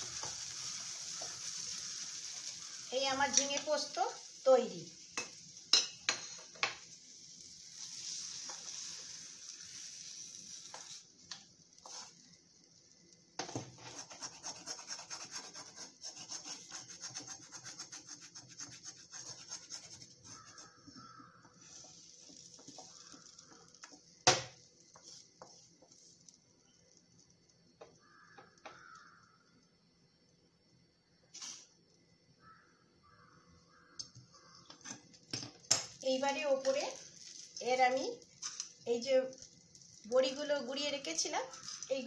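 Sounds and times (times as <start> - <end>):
spatula scraping a pan: 7.7 - 12.3, 13.7 - 24.0, 24.9 - 26.2.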